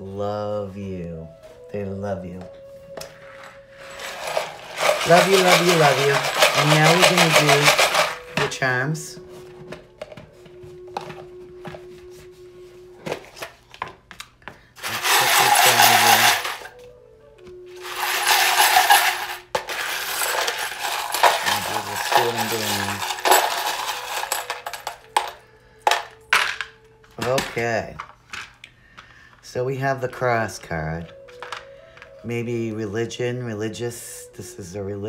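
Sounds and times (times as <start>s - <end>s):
charms rattling when shaken: 3.5s - 8.6s, 14.8s - 16.8s, 17.8s - 28.6s
charms clattering as they scatter: 3.8s - 8.6s, 14.8s - 16.7s, 17.8s - 28.6s.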